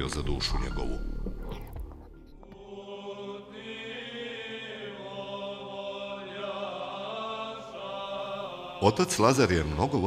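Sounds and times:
choir chanting: 0:02.4 - 0:10.0.

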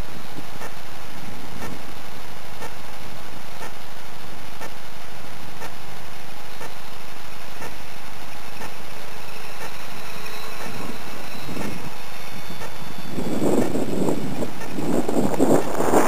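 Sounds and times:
model aircraft motor running: 0:00.0 - 0:16.0
steady microphone hiss: 0:00.0 - 0:16.0
wind rumble on microphone: 0:00.0 - 0:16.0.

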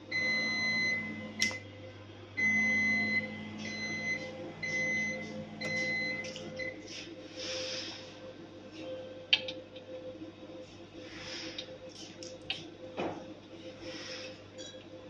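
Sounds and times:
printer alarm beeping: 0:00.0 - 0:01.6, 0:02.4 - 0:06.9
low machine hum: 0:00.0 - 0:15.0.

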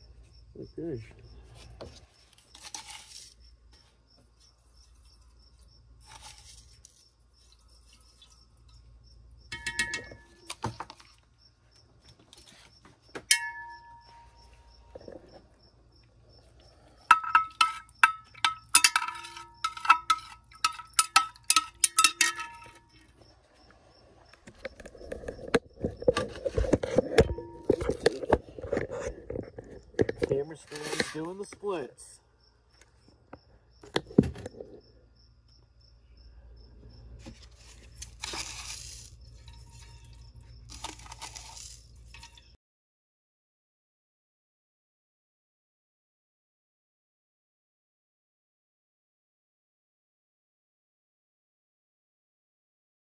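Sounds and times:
cricket chirping: 0:00.0 - 0:42.6
rough scraping in beaker: 0:01.5 - 0:03.5, 0:06.0 - 0:08.8, 0:17.5 - 0:23.1, 0:24.7 - 0:31.4, 0:37.2 - 0:42.6
glass rod clinking in beaker: 0:09.5 - 0:10.4, 0:17.1 - 0:22.9.

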